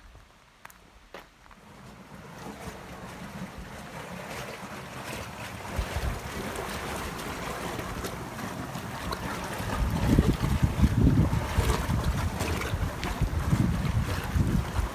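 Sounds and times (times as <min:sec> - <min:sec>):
water gushing into concrete basin: 0:01.6 - 0:14.9
wind buffeting microphone: 0:05.6 - 0:08.0, 0:09.2 - 0:14.9.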